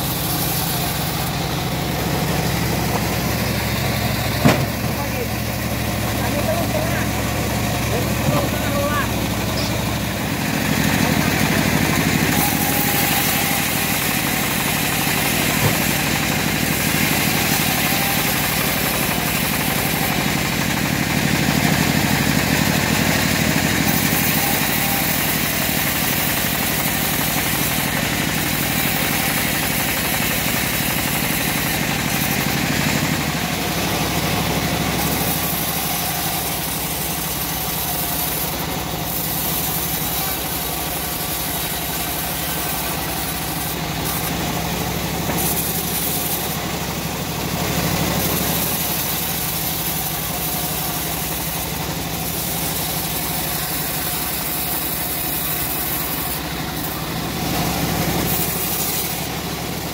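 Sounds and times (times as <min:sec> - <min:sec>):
bandsaw mill sawing log: 0:00.0 - 0:59.9.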